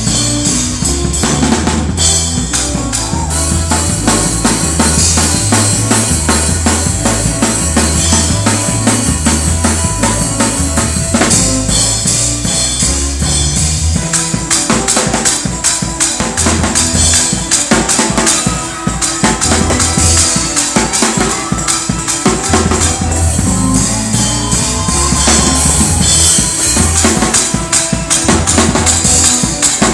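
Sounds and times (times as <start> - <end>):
low bass line: 0.0 - 14.0, 22.4 - 27.0
fast hard drum kit: 0.0 - 29.9.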